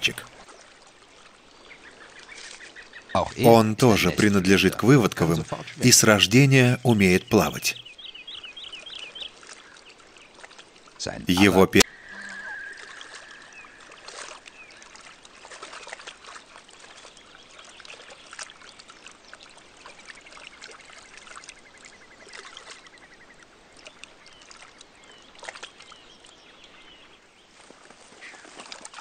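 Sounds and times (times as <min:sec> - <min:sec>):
small splashes: 0:00.0 - 0:05.8, 0:08.6 - 0:26.8, 0:27.4 - 0:29.0
water trickling and lapping: 0:00.0 - 0:29.0.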